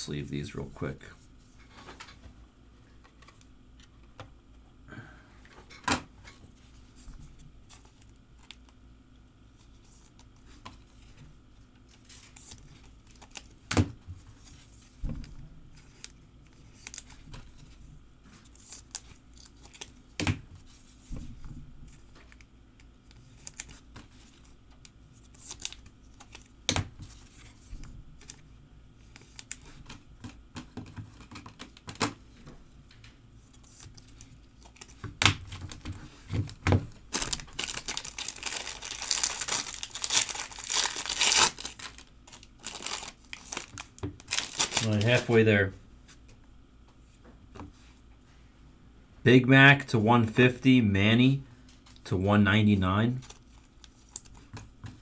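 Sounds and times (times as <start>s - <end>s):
plastic rustling: 33.6s - 45.4s.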